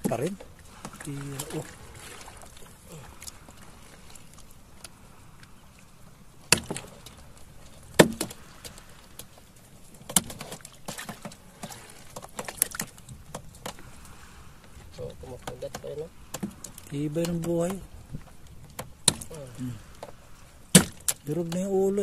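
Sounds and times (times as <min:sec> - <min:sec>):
knocks against wooden boat: 0:07.9 - 0:08.4, 0:15.4 - 0:19.3, 0:20.0 - 0:21.7.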